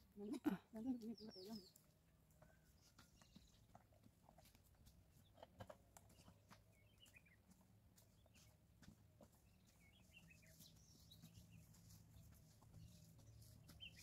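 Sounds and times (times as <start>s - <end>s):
faint bird chirp: 0.8s - 3.8s, 5.1s - 8.6s, 9.3s - 14.0s.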